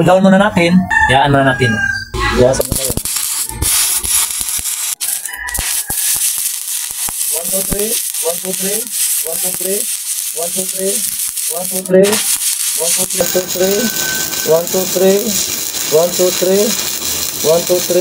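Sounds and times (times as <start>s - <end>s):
welding arc hissing crackle: 2.5s - 18.0s
sharp clicks: 2.6s - 17.9s.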